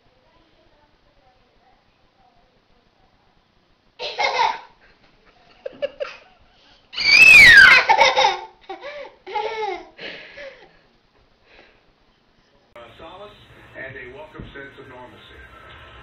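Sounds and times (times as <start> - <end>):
toddler high shriek: 7.0 - 7.9
toddler laughing and squealing: 7.0 - 8.5.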